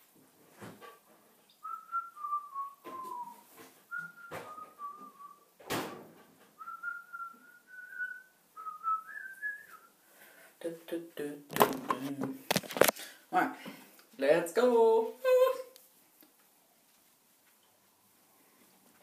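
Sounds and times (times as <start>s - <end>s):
person whistling: 1.6s - 5.4s, 6.6s - 9.9s.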